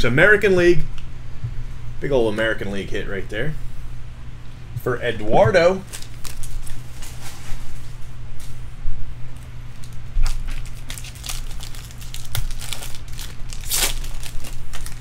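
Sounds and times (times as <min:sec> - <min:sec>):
foil wrapper tearing and crinkling: 0:05.8 - 0:07.4, 0:09.7 - 0:15.0.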